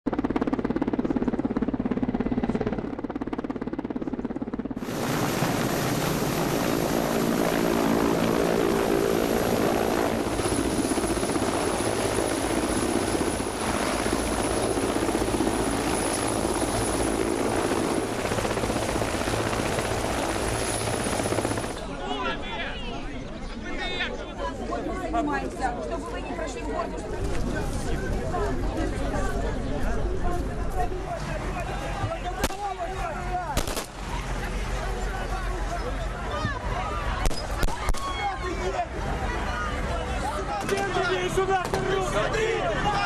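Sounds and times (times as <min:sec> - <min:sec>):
helicopter rotor drone: 0:00.1 - 0:22.5, 0:24.7 - 0:37.6, 0:38.2 - 0:43.0.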